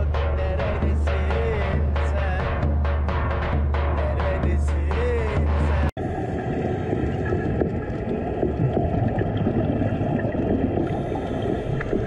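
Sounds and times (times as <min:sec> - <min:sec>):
underwater rumble of water: 0:05.1 - 0:12.0
faint underwater crackles: 0:06.0 - 0:12.0.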